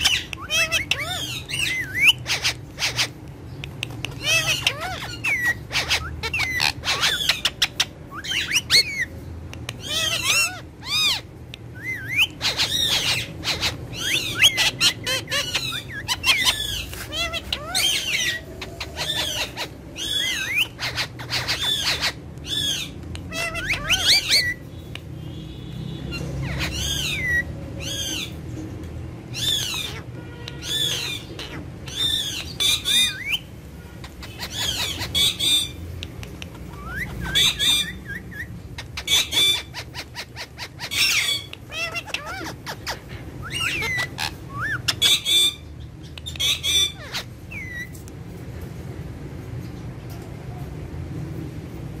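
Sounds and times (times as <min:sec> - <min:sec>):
parakeets chirping and squawking: 0:00.0 - 0:52.0.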